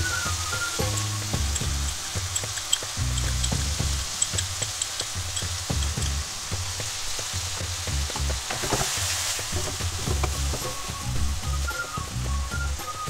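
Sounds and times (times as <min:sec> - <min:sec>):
food sizzling in a wok: 0:00.0 - 0:13.0
light music with bouncy bass: 0:00.0 - 0:13.0
wooden spoon scraping a pan: 0:08.5 - 0:10.9.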